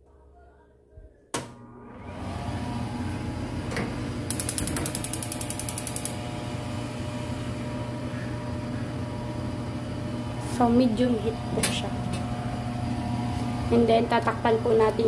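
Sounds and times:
steady low hum: 2.6 - 15.0
gas hob igniter clicking: 3.7 - 6.2.

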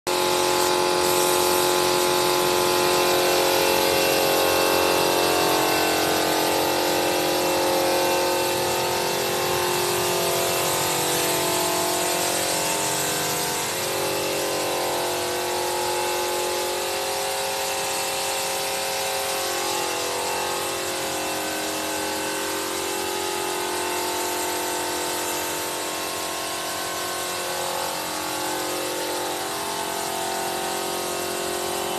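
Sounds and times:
air compressor humming: 0.1 - 31.9
compressed air hissing: 0.3 - 14.6.

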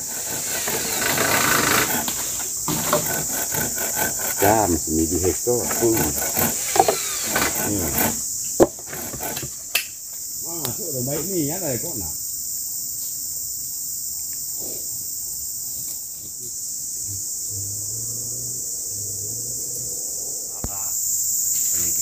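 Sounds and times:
insects chorus: 0.0 - 22.0
sharp knocks: 1.8 - 4.3, 5.7 - 9.6.

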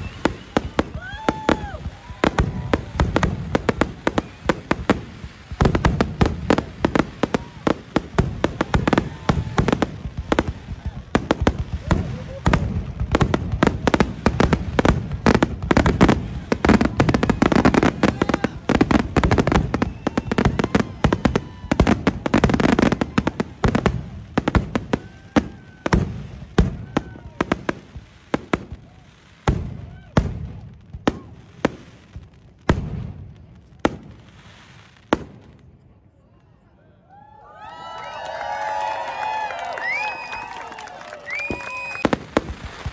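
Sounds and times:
booming firework reports: 0.0 - 31.7
fireworks bangs and crackle: 0.0 - 36.4, 37.8 - 42.9.

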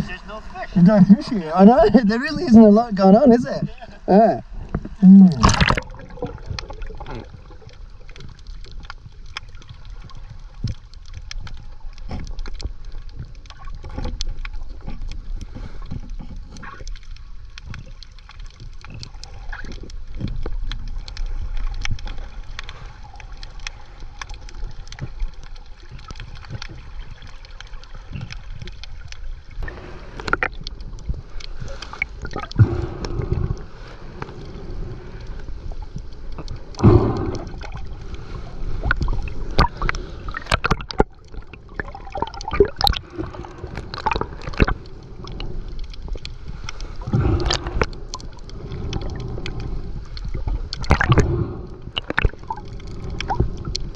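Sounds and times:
water sloshing and gurgling: 0.0 - 53.9
water splashes: 0.0 - 53.9.

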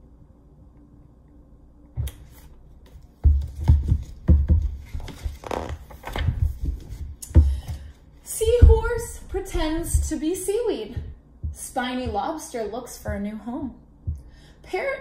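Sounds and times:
paper pages rustling: 4.8 - 7.1.

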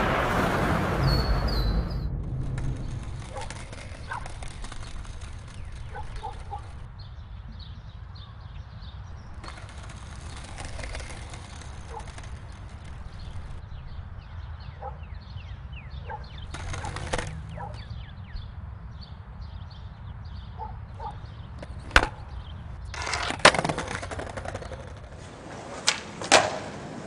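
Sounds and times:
skateboard wheels rolling: 0.0 - 14.6, 16.2 - 20.5, 21.1 - 27.0
small birds chirping: 1.0 - 25.2
skateboard snapping on paving: 2.2 - 6.9, 9.4 - 13.6, 16.3 - 17.9, 21.2 - 27.0.

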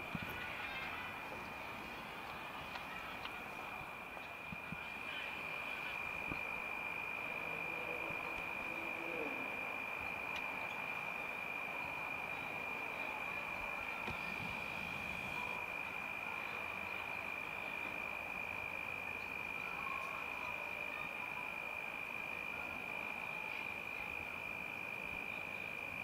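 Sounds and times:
light hiss: 0.0 - 20.2.

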